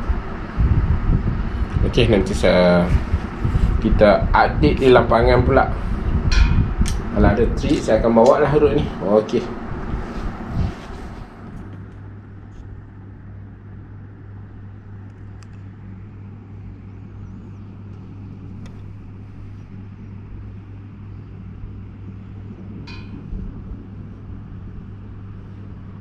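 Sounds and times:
steady low hum: 0.0 - 26.0.

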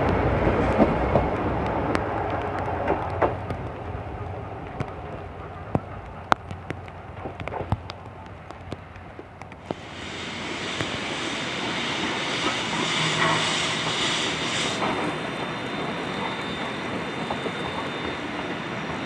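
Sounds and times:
low rumble: 9.6 - 16.6
steam hiss and train noise: 9.6 - 19.0.

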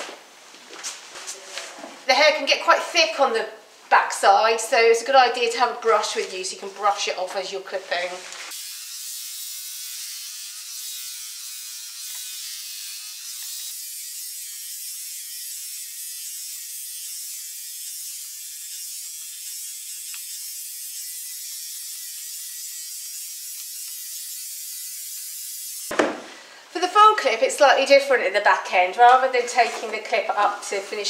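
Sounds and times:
electric clippers buzzing: 8.5 - 25.9.

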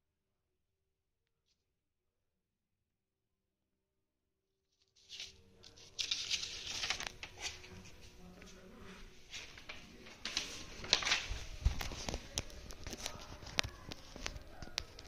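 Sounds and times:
rustling and crackling: 5.0 - 15.0.

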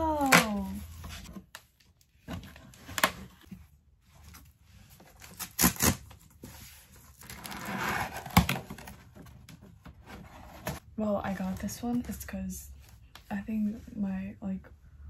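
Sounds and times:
cardboard tear strip ripping: 5.2 - 6.1.

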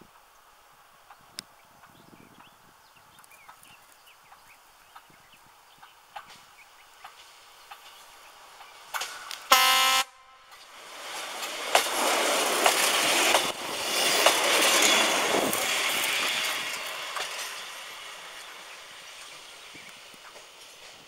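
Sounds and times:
diesel train engine passing: 0.1 - 21.0
wheels clicking over rail joints: 3.2 - 9.6, 10.5 - 21.0
train horn blast: 9.5 - 10.5.

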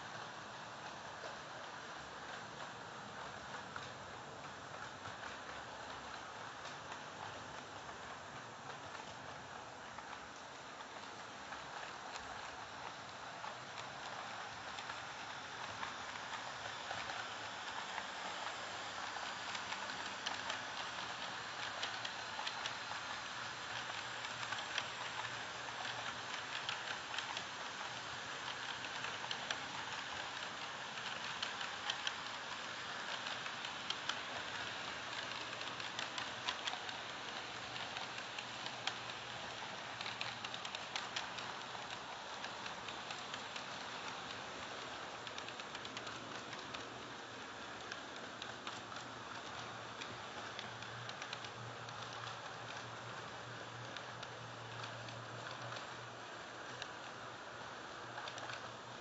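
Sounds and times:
light clicks and ticks: 2.3 - 59.0
model train wheels rattling: 9.8 - 59.0.

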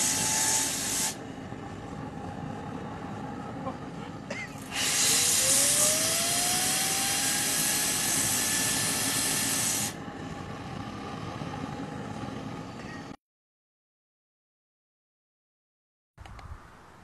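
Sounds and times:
jet engine air rush: 0.0 - 13.2
rotor whine: 0.0 - 13.2.

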